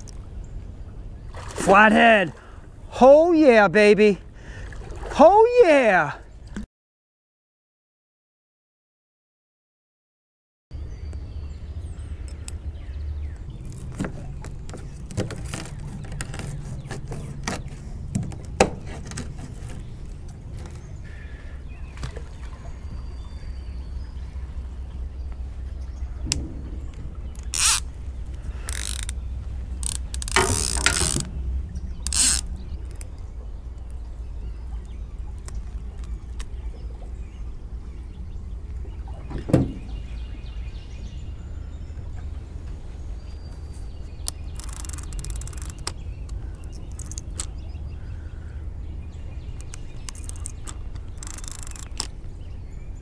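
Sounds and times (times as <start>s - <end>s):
low rumble: 23.4s - 30.2s
fishing reel ratcheting clicks: 27.4s - 27.8s, 28.6s - 29.2s, 32.0s - 33.0s, 44.3s - 45.9s, 49.6s - 52.1s.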